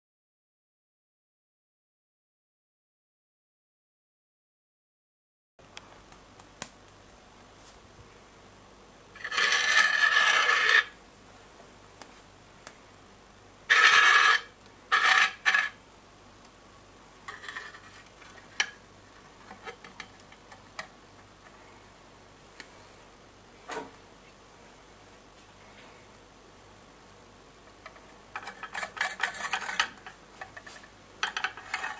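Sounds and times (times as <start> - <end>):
metal scraping across tabletop: 9.2 - 11.0, 13.7 - 15.8, 17.3 - 18.8, 28.4 - 31.9.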